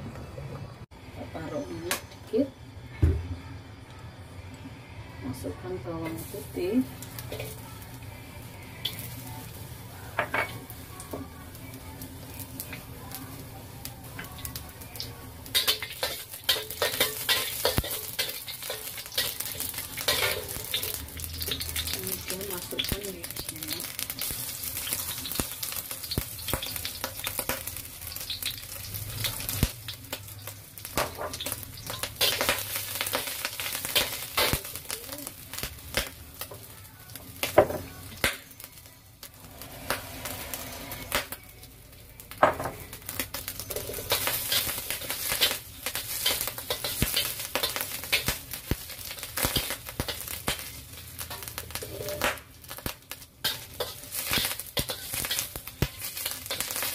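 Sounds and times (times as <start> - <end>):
food sizzling in a wok: 1.0 - 56.9
metal spatula scraping a pan: 39.4 - 41.3, 49.4 - 52.3, 53.4 - 56.9.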